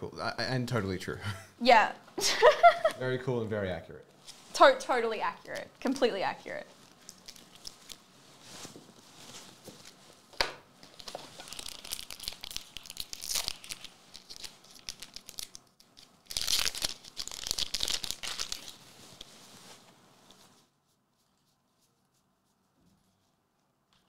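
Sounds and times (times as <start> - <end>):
wrapper crackly rustling: 5.4 - 22.2.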